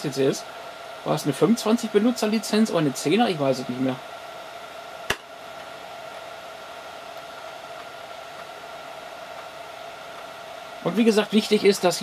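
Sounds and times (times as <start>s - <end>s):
computer whirring hum: 0.0s - 12.0s.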